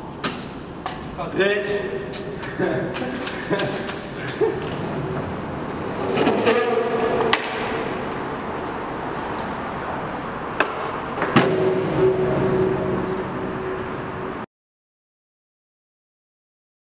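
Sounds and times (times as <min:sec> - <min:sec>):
longboard wheels rolling on concrete: 0:02.5 - 0:14.4
wheels squealing while sliding: 0:05.9 - 0:07.3
board clacking on concrete: 0:06.1 - 0:08.2.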